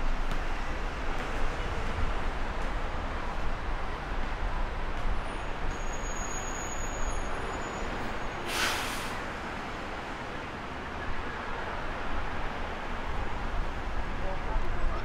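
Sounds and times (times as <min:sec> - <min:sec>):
road traffic rumble: 0:00.0 - 0:15.0
short sharp hiss: 0:08.5 - 0:09.2.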